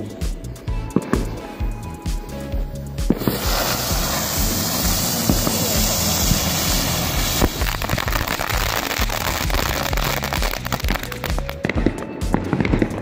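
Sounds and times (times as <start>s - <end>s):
background music: 0.0s - 13.0s
spinner fireworks hissing: 0.0s - 13.0s
firework cracks and pops: 3.0s - 13.0s.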